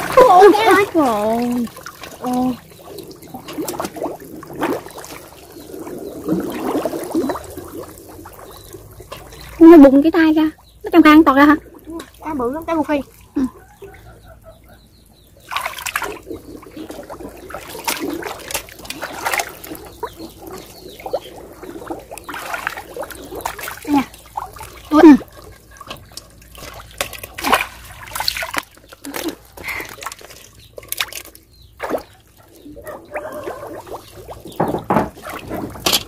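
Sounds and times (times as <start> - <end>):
muddy water sloshing and splashing: 0.0 - 36.0.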